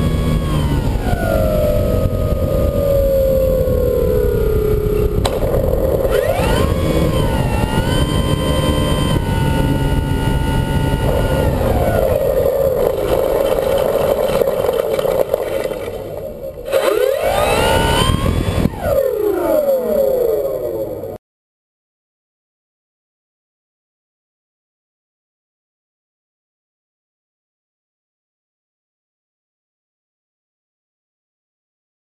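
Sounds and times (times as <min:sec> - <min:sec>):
wind rush on microphone: 0:00.0 - 0:21.0
model airplane engine running: 0:00.0 - 0:21.2.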